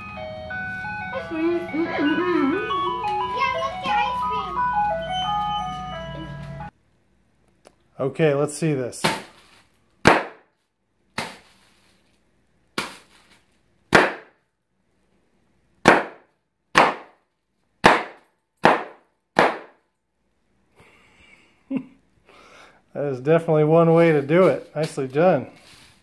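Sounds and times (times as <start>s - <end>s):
bubble wrap popping: 12.8s - 14.3s.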